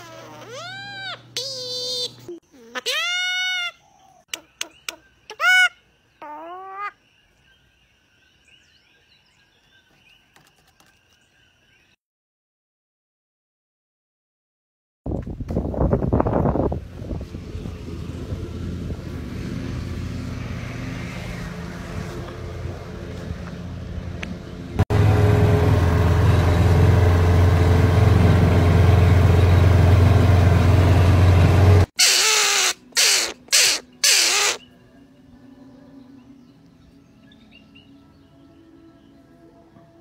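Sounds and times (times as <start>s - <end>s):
bird harsh squawks: 5.3s - 7.0s, 32.0s - 34.7s.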